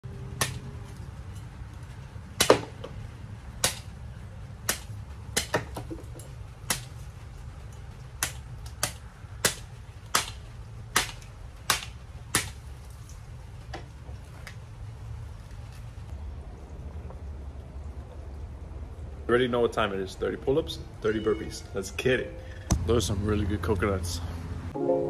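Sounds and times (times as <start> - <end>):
machete chopping coconut: 0.4 - 0.8, 2.4 - 3.0, 3.6 - 4.0, 4.6 - 5.9, 6.6 - 7.0, 8.1 - 12.6.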